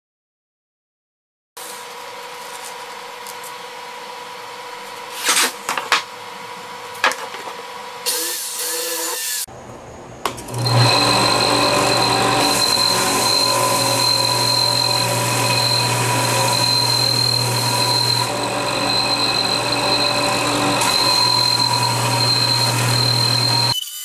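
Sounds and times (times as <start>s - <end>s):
steady workshop hum: 1.6s - 23.8s
power tool running: 10.4s - 24.0s.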